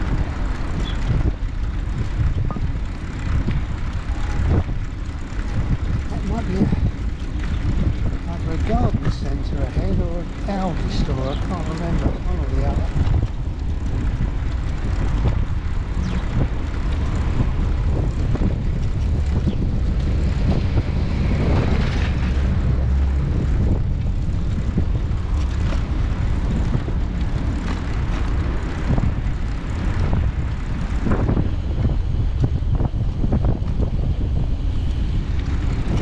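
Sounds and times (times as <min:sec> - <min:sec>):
tyres rolling on tarmac: 0:00.0 - 0:36.0
wind rumble on microphone: 0:00.0 - 0:36.0.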